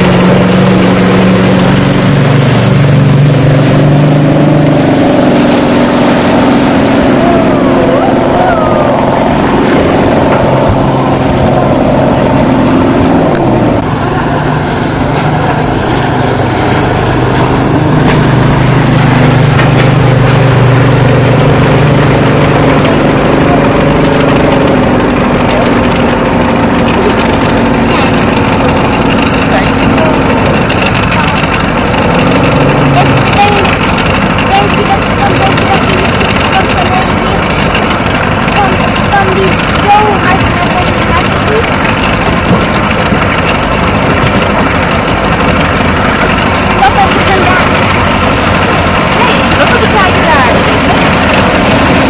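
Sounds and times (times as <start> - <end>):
wind rushing: 0.0 - 26.8
motorboat engine running hard: 0.0 - 52.0
water rushing: 0.0 - 52.0.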